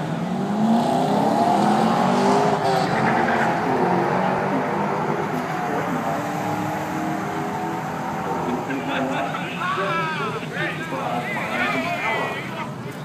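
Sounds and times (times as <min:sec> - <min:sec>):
car engine revving hard: 0:00.0 - 0:09.4
spinning tyres squealing: 0:01.9 - 0:12.3.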